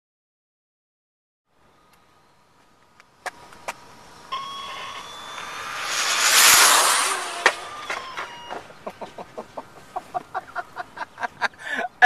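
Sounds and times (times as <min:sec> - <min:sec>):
sharp crack: 0:03.0 - 0:08.8
electric toy car motor whine: 0:03.4 - 0:08.7.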